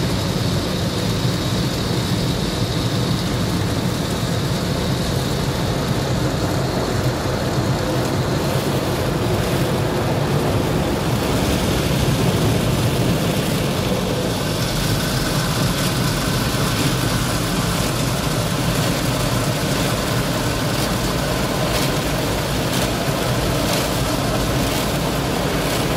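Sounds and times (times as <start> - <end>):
car wash machinery rumble: 0.0 - 25.9
water spray on car: 0.0 - 25.9
brushes washing over car: 10.4 - 25.9.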